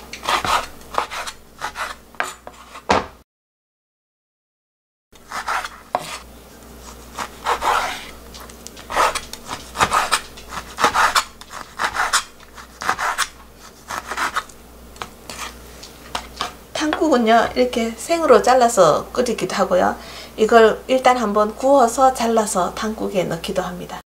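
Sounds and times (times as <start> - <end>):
knife chopping on wooden board: 0.0 - 3.2, 5.3 - 6.2, 7.1 - 8.2, 8.8 - 15.5.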